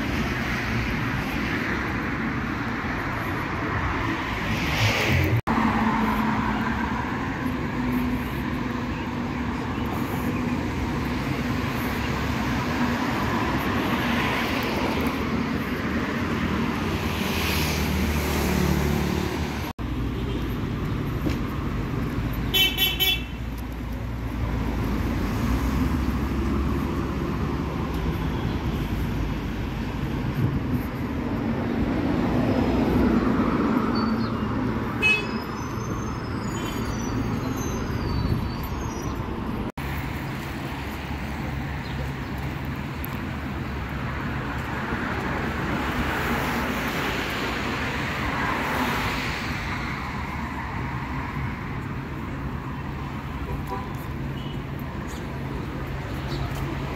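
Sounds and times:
road traffic: 0.0s - 56.9s
car horn toots: 22.5s - 23.4s, 35.0s - 35.4s.

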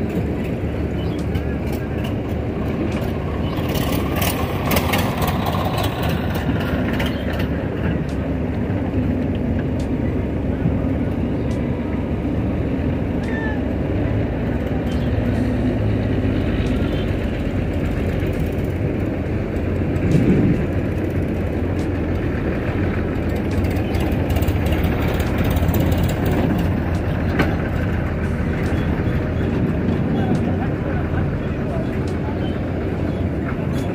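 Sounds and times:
diesel engines running: 0.0s - 33.9s.

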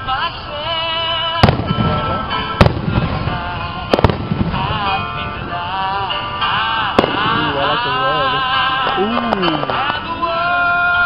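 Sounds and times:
fireworks bursting: 0.0s - 11.0s
music with singing voice: 0.0s - 11.0s.

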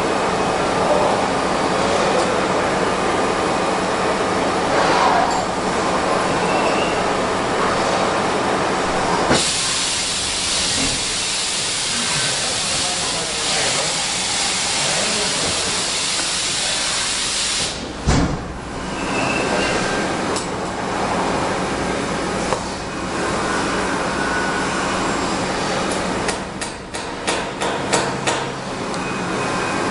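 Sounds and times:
machining center running: 0.0s - 29.9s
loud steady hiss: 9.3s - 17.8s
thump: 18.0s - 18.6s.

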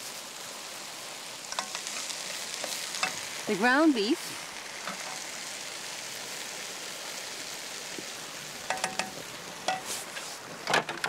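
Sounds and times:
meat sizzling in a pot: 0.0s - 11.0s
pot being stirred knocks: 8.7s - 9.9s.

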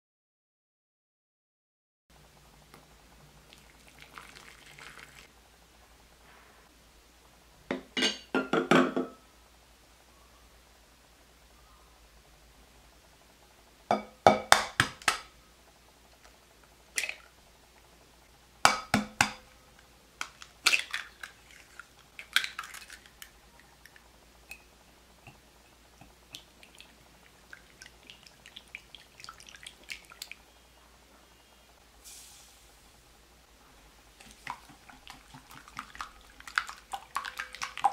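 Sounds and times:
eggs cracked on glass bowl: 20.2s - 24.7s
whisk tapping in bowl: 34.2s - 37.9s.

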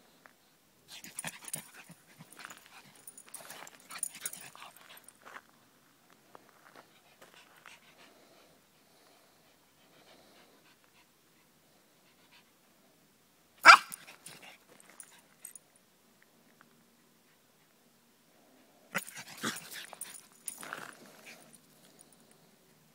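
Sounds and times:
dog barking: 13.6s - 14.0s.

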